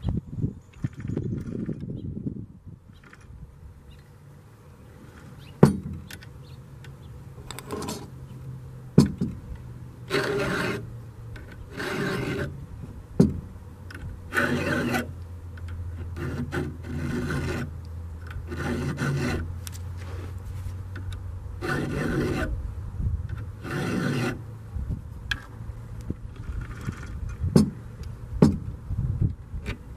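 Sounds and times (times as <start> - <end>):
round file rasping on chain: 10.1 - 10.9, 11.5 - 12.6, 14.3 - 15.1, 16.0 - 17.8, 18.4 - 19.5, 21.6 - 22.6, 23.6 - 24.4.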